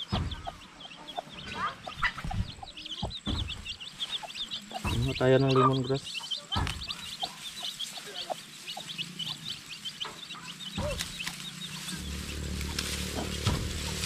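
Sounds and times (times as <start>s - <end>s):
birds chirping: 0.0s - 14.0s
grass stalks rustling and snapping: 6.6s - 10.0s, 10.6s - 14.0s.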